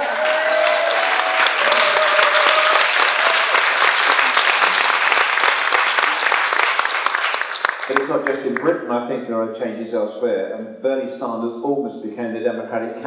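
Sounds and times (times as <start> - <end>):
audience applauding: 0.0 - 8.8.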